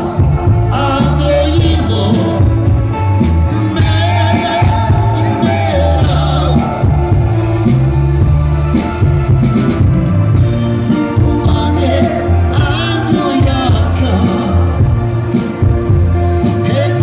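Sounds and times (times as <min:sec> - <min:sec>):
man singing: 0:00.0 - 0:07.3, 0:10.9 - 0:15.1, 0:16.4 - 0:17.0
drums: 0:00.0 - 0:17.0
electric guitar: 0:00.0 - 0:17.0
heavy bass line: 0:00.0 - 0:17.0
keyboard: 0:00.0 - 0:17.0.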